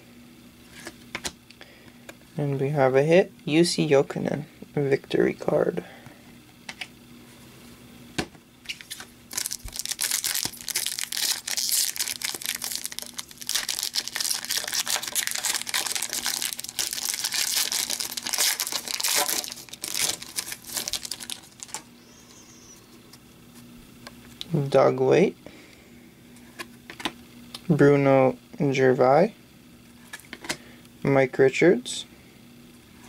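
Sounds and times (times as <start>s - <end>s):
foil wrapper crinkling and tearing: 8.7s - 21.9s.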